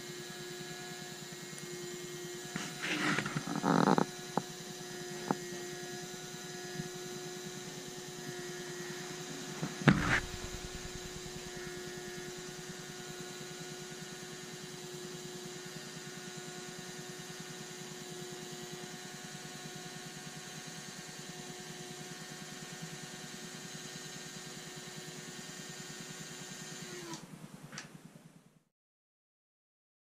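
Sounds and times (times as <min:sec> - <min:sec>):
electric motor and gearbox humming: 0:00.1 - 0:16.9
sharp knock: 0:09.8 - 0:11.6.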